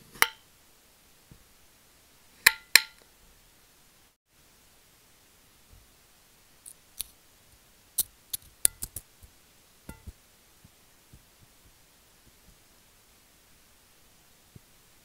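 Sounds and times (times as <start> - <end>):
clicks and taps on glass plate: 9.9 - 10.2.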